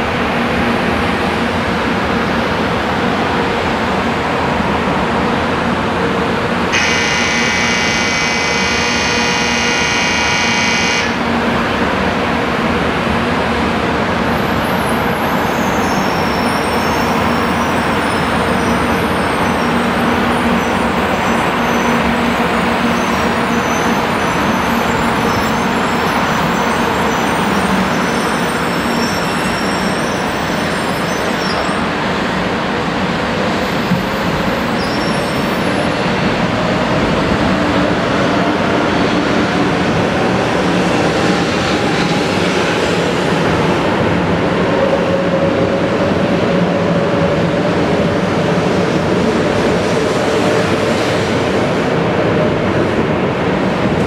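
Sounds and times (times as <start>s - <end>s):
train running noise: 0.0s - 54.0s
train motor whine: 6.7s - 11.5s.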